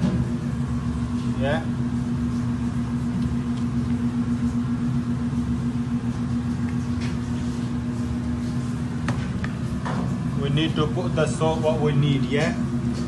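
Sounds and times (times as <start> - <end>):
steady mechanical hum: 0.0 - 13.0.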